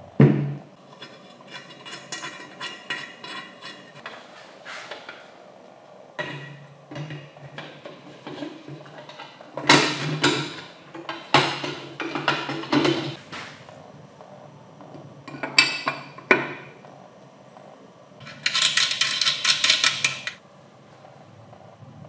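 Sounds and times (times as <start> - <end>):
metal parts knocking and clinking: 1.0 - 4.1, 18.2 - 20.4.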